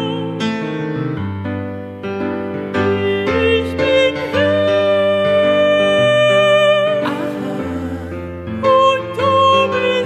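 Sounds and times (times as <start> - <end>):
slow sustained chords: 7.0 - 8.7.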